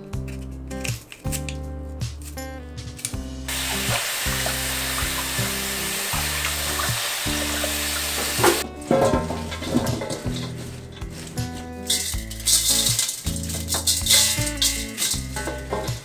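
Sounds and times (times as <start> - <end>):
water splashes: 3.5 - 8.6.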